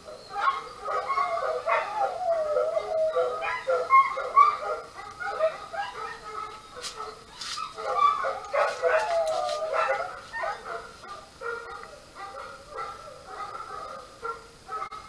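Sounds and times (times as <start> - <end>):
animal whining and yelping: 0.0 - 10.8.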